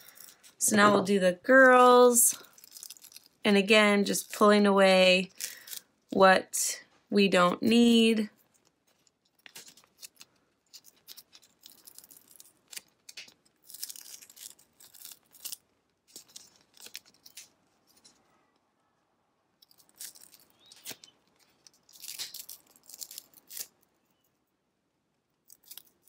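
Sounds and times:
vinyl peeling crinkling: 0.0s - 3.5s, 8.3s - 18.2s, 19.6s - 24.2s.

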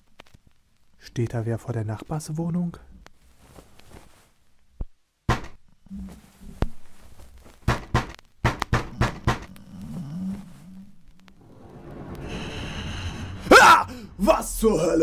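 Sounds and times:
fist pounding on a door: 7.7s - 9.5s.

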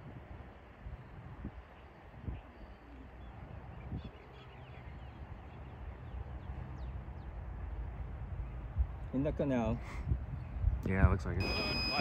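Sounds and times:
wind noise on microphone: 0.0s - 4.3s, 8.0s - 9.1s, 9.9s - 12.0s
faint bird chirps: 1.1s - 6.5s.

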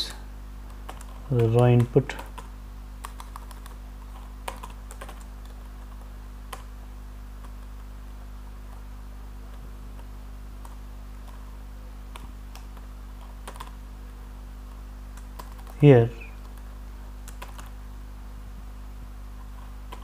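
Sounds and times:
steady low hum: 0.0s - 20.0s
keyboard keystrokes: 4.4s - 6.7s, 13.5s - 13.8s, 17.3s - 17.7s.

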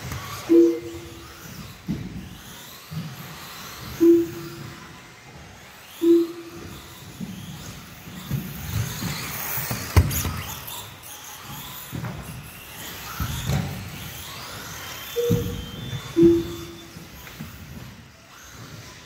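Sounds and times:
toy car motors whining: 0.0s - 19.0s
toy cars clacking against borders: 0.0s - 19.0s
short low tones: 0.5s - 1.2s, 4.0s - 4.6s, 6.0s - 6.5s, 16.2s - 16.9s.

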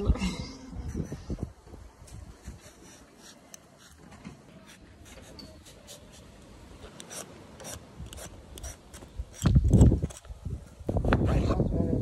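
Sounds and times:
peeler scraping fruit skin: 2.4s - 10.8s.

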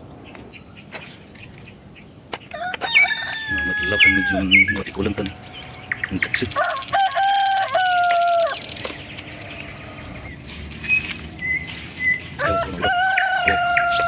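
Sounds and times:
leaves and twigs rustling: 0.0s - 14.0s
rooster crowing: 2.5s - 8.8s, 12.3s - 14.0s.

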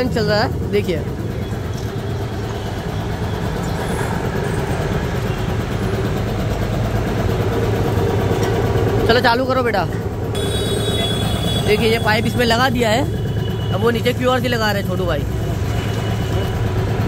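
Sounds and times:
air compressor running: 9.9s - 17.0s.

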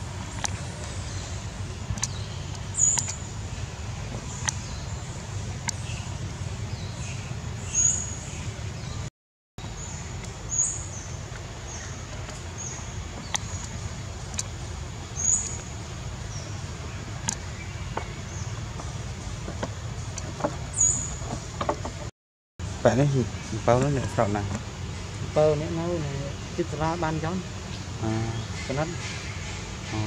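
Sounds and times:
steady low rumble: 0.0s - 30.0s
faint clicks: 13.2s - 14.5s.

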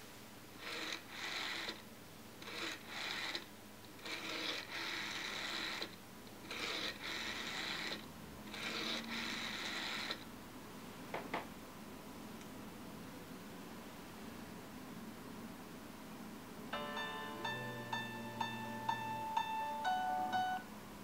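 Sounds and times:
rotary dial whirring and clicking: 0.6s - 1.8s, 2.4s - 10.3s.

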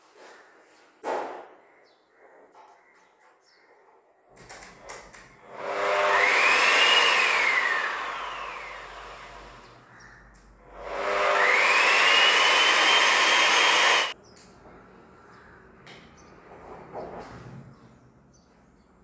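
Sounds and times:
sanding machine motor whine: 5.4s - 9.8s, 10.8s - 14.2s.

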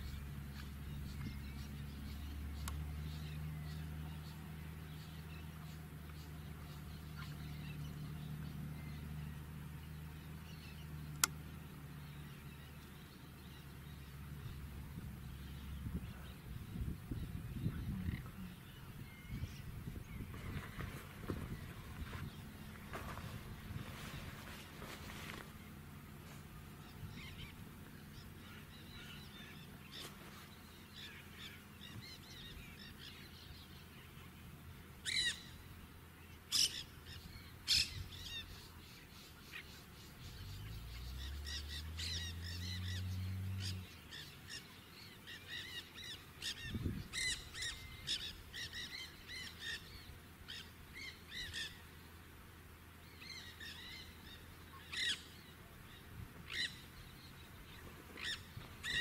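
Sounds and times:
parakeets chattering: 15.3s - 25.6s, 53.1s - 59.0s.

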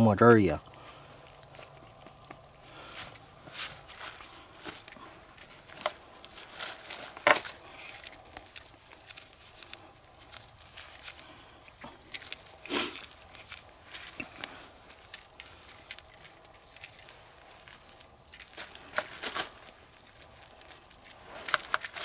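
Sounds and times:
small clicks and rustles: 0.6s - 22.0s
plastic bag crinkling: 0.8s - 22.0s.

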